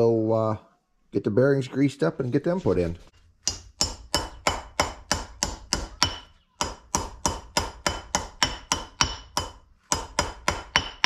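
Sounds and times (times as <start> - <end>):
hammer striking metal: 3.4 - 11.0.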